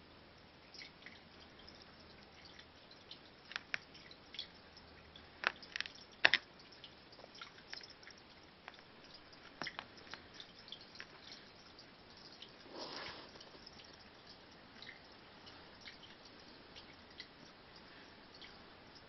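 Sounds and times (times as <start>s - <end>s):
cat licking fur: 10.0s - 14.1s.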